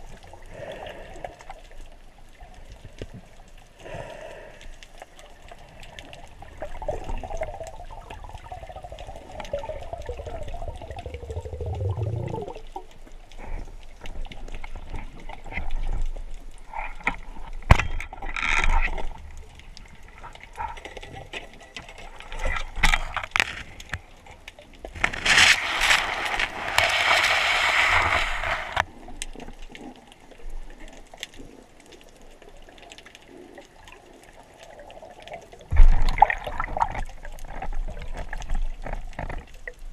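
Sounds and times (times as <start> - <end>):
clicks and knocks underwater: 0.0 - 39.9
loud hissing rush: 25.6 - 28.8.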